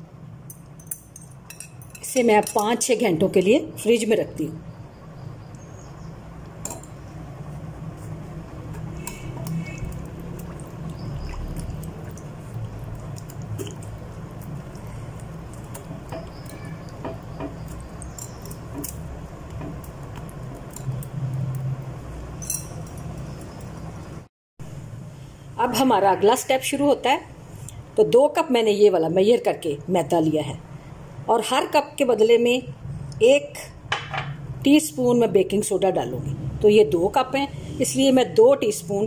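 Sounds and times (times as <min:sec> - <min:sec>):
steady low hum: 0:00.0 - 0:28.0
wet stirring: 0:06.6 - 0:23.8.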